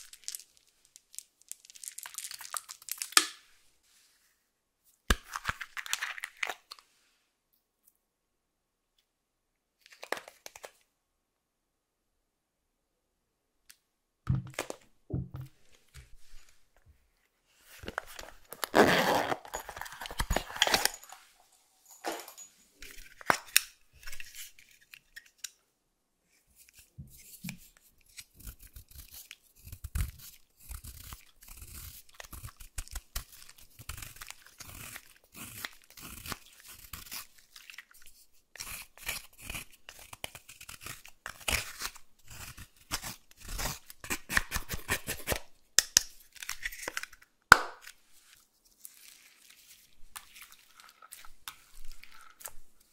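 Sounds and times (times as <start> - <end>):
zipper pulled open: 18.2 - 21.2.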